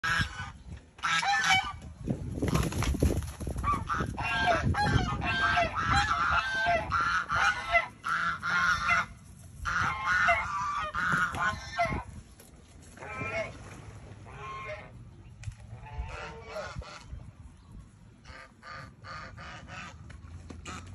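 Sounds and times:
geese honking: 0.0s - 1.8s, 3.6s - 12.1s, 13.0s - 13.6s, 14.2s - 15.0s, 15.8s - 17.2s, 18.2s - 20.9s.

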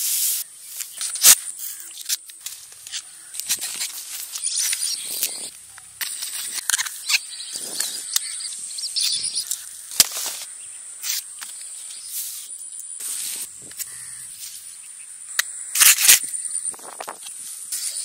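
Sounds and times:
insect drone: 0.0s - 18.0s.

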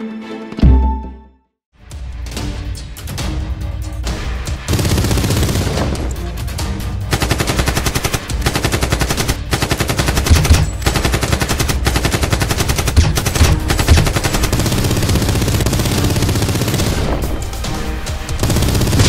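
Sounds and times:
background music: 0.0s - 19.0s
machine-gun fire sound effects: 4.7s - 6.1s, 7.1s - 17.6s, 18.4s - 19.0s.

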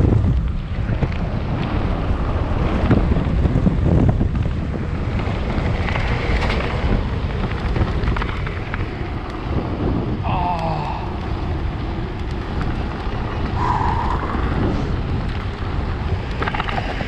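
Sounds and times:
bike rattling over stones: 0.0s - 17.0s
tyres rumbling on gravel trail: 0.0s - 17.0s
wind buffeting microphone: 0.0s - 17.0s.

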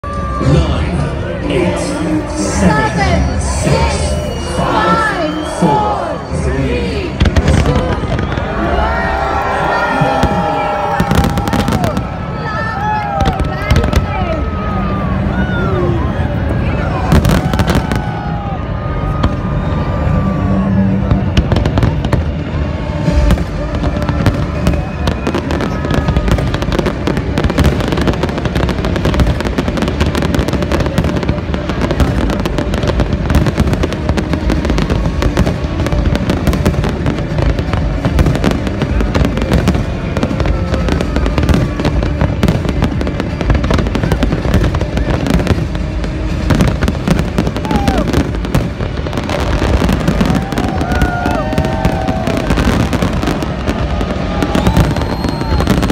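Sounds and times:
fireworks bangs and crackling: 0.0s - 55.9s.

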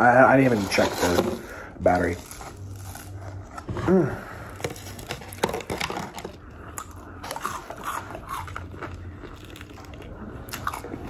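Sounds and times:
chewing crispy onion rings: 1.9s - 3.6s, 4.4s - 11.0s.

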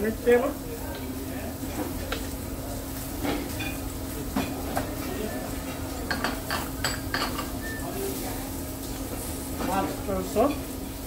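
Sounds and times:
dishes and cutlery clinking: 3.2s - 5.1s, 5.7s - 7.9s.

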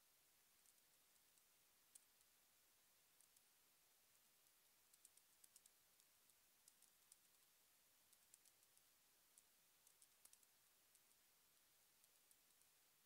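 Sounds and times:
keyboard typing: 4.9s - 7.5s, 8.1s - 8.8s, 9.4s - 11.1s.

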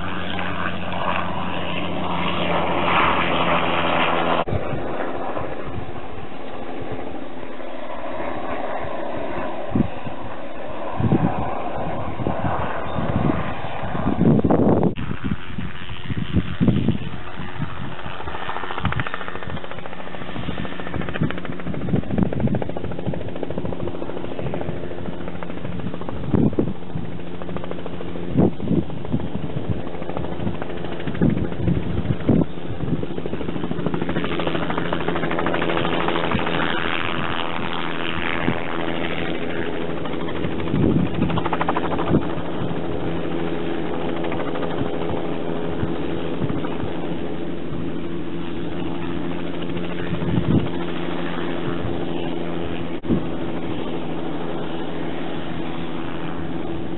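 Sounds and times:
helicopter engine and rotor drone: 0.0s - 56.9s.

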